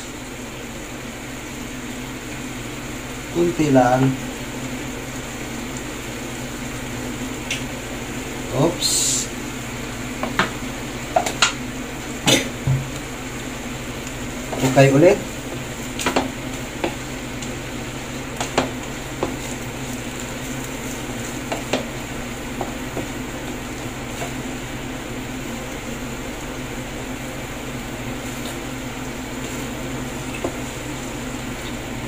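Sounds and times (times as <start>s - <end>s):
vegetables sizzling in a frying pan: 0.0s - 32.0s
wooden spoon knocking on pan: 10.2s - 11.6s, 12.3s - 13.0s, 16.0s - 17.0s, 18.4s - 19.5s, 21.4s - 21.9s, 22.6s - 23.2s.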